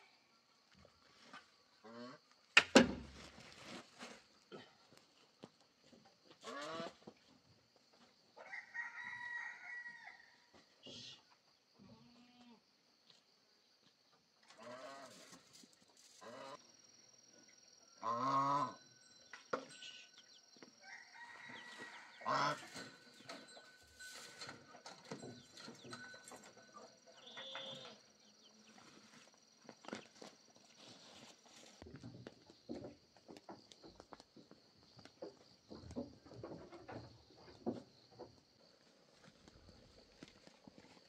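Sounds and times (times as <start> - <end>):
rooster crowing: 8.4 - 10.4, 20.8 - 22.8
chickens clucking: 21.7 - 27.9.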